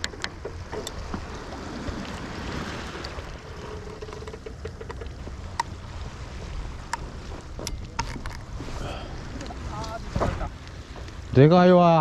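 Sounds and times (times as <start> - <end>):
wind rumbling on microphone: 0.0 - 11.9.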